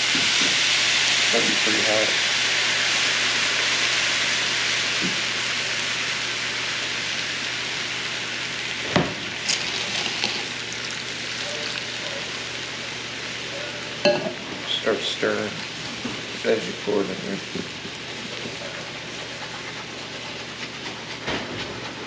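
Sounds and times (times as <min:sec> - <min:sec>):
sizzling and hissing: 0:00.0 - 0:22.0
water pouring into hot skillet: 0:08.7 - 0:12.5.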